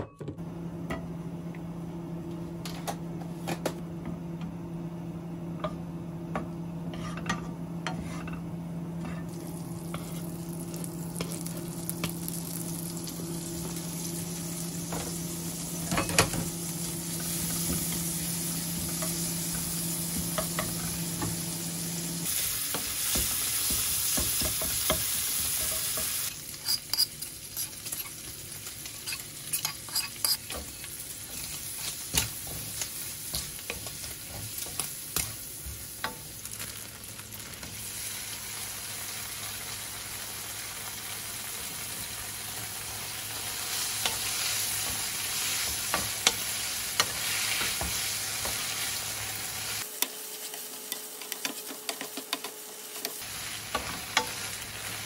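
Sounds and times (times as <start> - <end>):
spatula scraping the pan: 6.9 - 7.2, 26.6 - 28.2, 28.9 - 32.6
bacon sizzling in a frying pan: 9.3 - 55.0.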